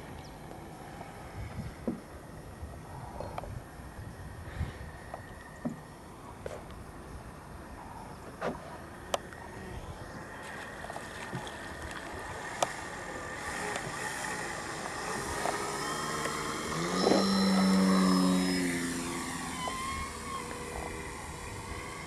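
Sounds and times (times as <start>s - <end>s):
model plane propeller whine: 0.0s - 22.0s.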